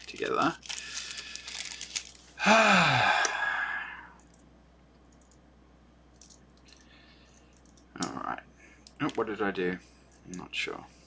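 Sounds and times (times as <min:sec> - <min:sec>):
plastic bag crinkling: 0:00.0 - 0:02.4
man sighing: 0:02.4 - 0:04.2
faint clicks of small parts: 0:04.2 - 0:05.4, 0:06.1 - 0:09.3.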